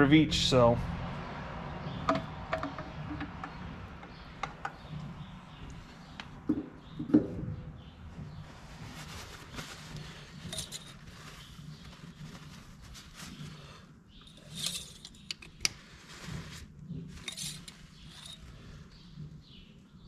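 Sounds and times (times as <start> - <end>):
paper towel rustling: 8.4 - 13.8.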